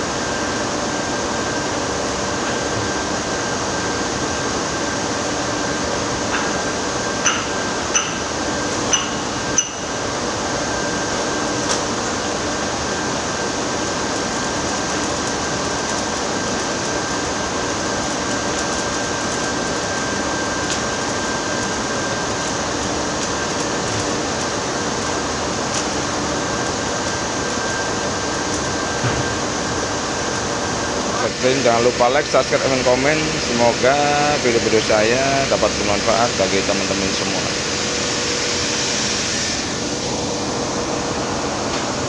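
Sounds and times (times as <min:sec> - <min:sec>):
arc welding crackling hiss: 0:00.1 - 0:42.0
sharp welding pops: 0:07.2 - 0:09.9.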